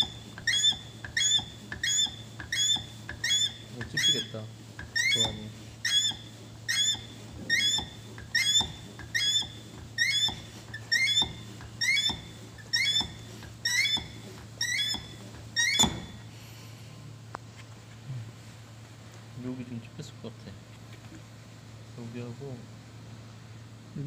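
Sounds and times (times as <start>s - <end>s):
crimping tool pump squeaking: 0.0s - 16.3s.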